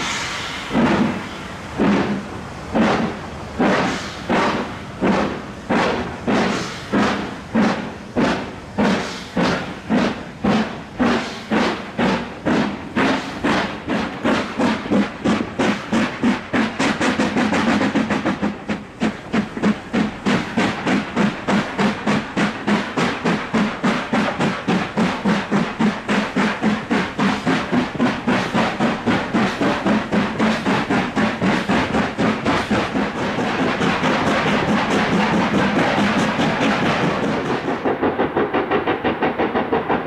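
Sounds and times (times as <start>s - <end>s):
steam locomotive exhaust beats: 0.0s - 40.0s.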